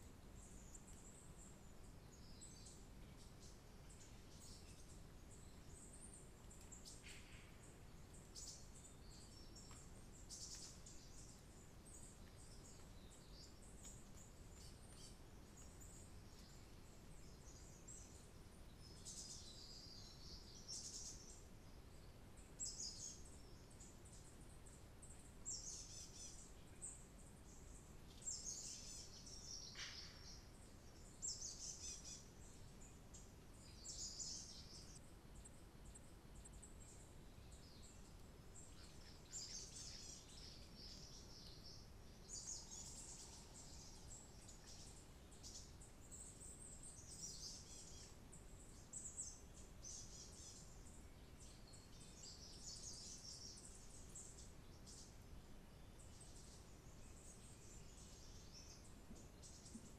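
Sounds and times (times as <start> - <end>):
low steady hiss: 0.0 - 59.9
small birds chirping: 0.0 - 59.9.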